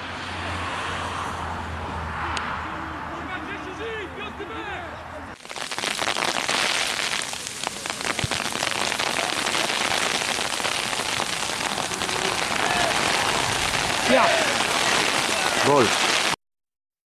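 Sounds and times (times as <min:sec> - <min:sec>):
icy precipitation pattering: 0:05.4 - 0:16.4.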